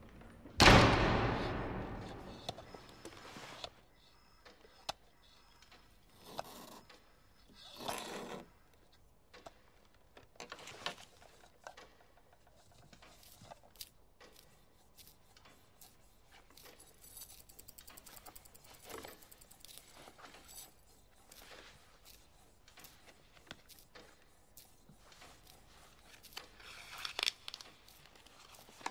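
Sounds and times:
hands fiddling with small objects: 8.8 - 28.9.

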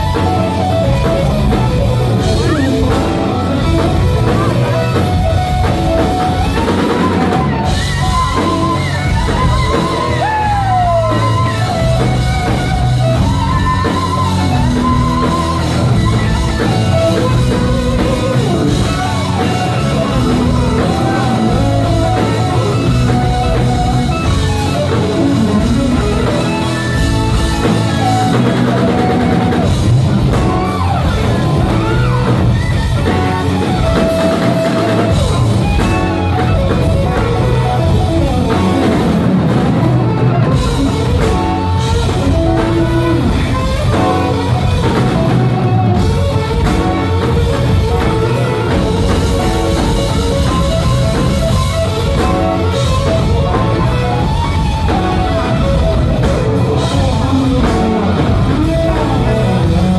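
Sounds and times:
bending guitar lead line: 0.0 - 59.9
live rock band playing: 0.0 - 59.9.

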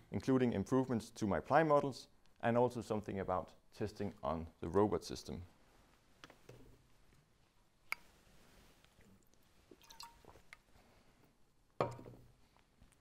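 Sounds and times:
sipping and swallowing: 8.9 - 10.7.

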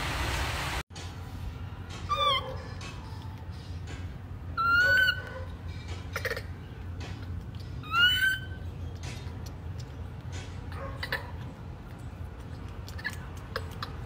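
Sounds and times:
baby monkey crying: 4.6 - 5.3, 6.1 - 6.6, 7.8 - 8.7.

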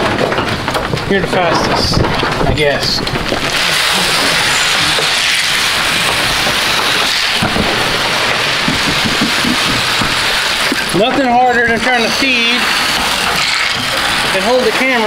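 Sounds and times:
dry feed pouring: 3.4 - 15.0
dull knocks: 4.3 - 11.9.

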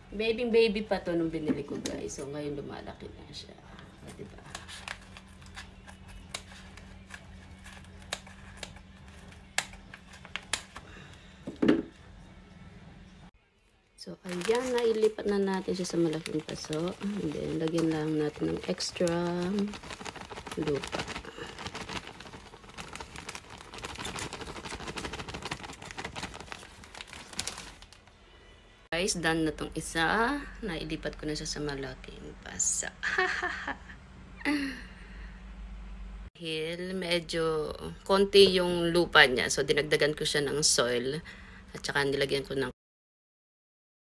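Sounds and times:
scissors cutting plastic: 4.4 - 10.8
potting soil crackling: 14.0 - 28.0.

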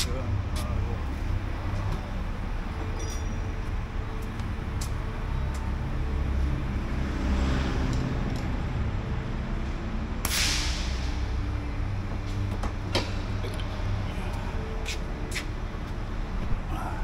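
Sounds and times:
large engine running: 7.7 - 17.0.

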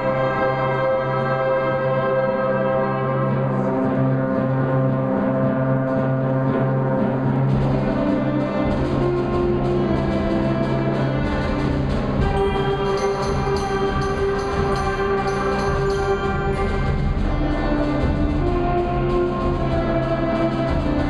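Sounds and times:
concert band playing chords: 0.0 - 21.0
shimmering percussion: 8.6 - 21.0.

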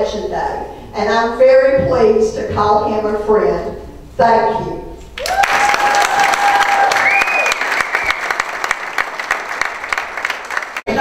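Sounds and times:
audience applauding: 5.2 - 11.0
steady whistling tone: 7.0 - 8.4.

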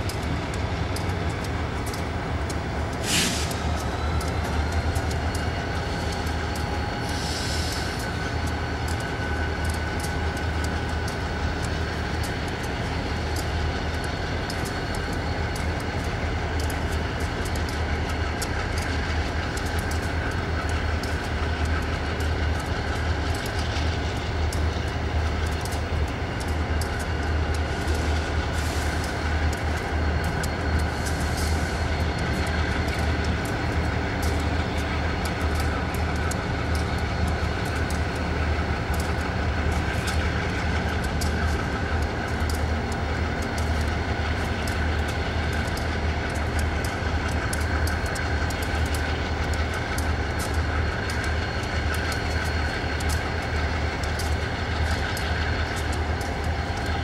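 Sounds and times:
diesel locomotive engine humming: 0.0 - 57.0
light clicks: 0.1 - 57.0.

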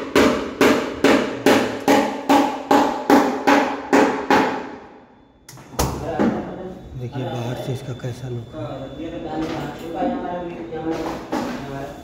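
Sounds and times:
hammer blows ringing: 0.0 - 6.5.

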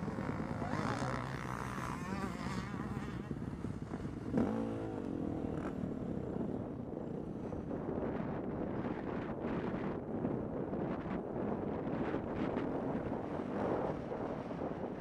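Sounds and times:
dirt bike engines revving: 0.0 - 7.6.

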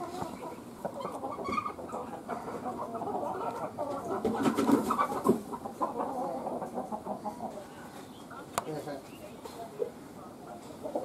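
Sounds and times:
chickens clucking: 0.0 - 11.0.

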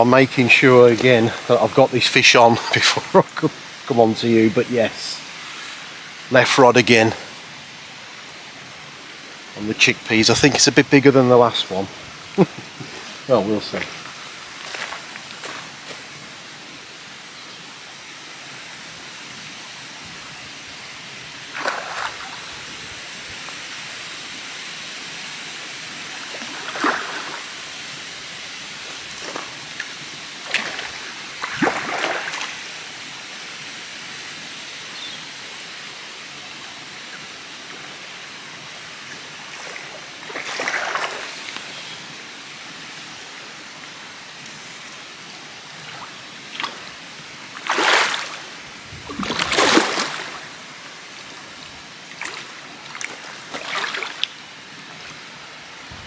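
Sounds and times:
steady background hiss: 0.0 - 56.0
fish splashing in water: 21.5 - 22.5, 26.3 - 27.4, 29.2 - 32.6, 39.6 - 41.4, 47.6 - 48.5, 49.1 - 50.6.

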